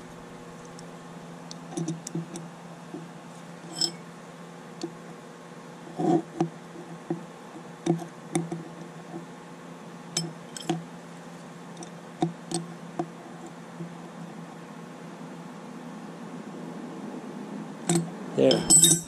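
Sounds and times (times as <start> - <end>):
wrenches clinking on metal fitting: 3.7 - 4.0, 17.9 - 19.0.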